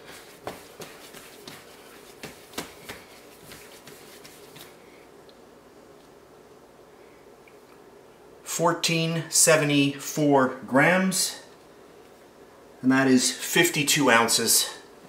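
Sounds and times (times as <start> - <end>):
hands patting dough: 0.0 - 5.0.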